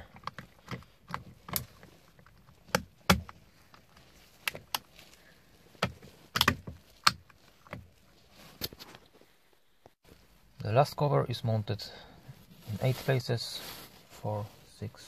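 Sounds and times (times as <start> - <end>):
sharp plastic clicks and knocks: 5.8 - 7.8.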